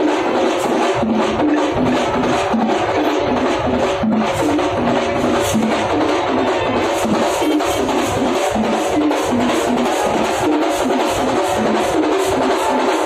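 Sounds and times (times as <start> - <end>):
fast percussion drumming: 0.0 - 13.0.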